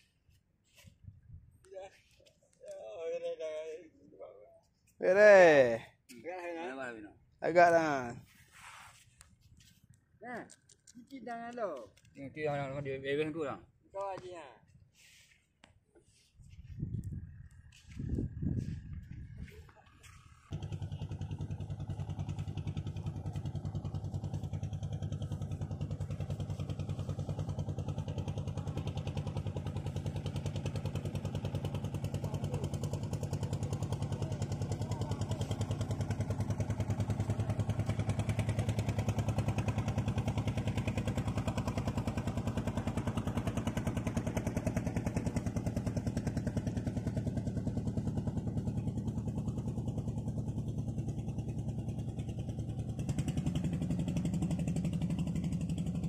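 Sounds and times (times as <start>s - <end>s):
boat engine puttering: 20.2s - 56.0s.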